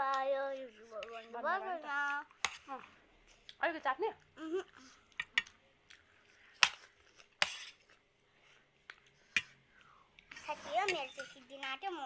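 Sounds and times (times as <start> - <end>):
faint eating noises: 0.0 - 12.0
cutlery clinking on plates: 10.3 - 11.7.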